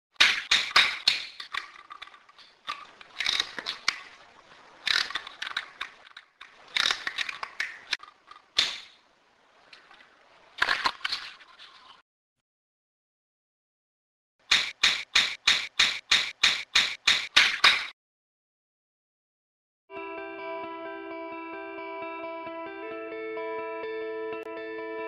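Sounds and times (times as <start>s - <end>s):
sharp clicks and cracks: 0.2s - 4.2s, 4.8s - 9.0s.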